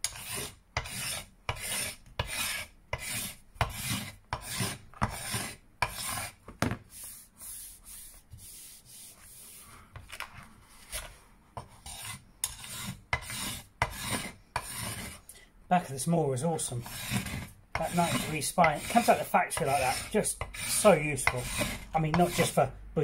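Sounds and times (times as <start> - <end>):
hand tool scraping wood: 0.0 - 6.4, 10.9 - 15.2, 16.6 - 22.7.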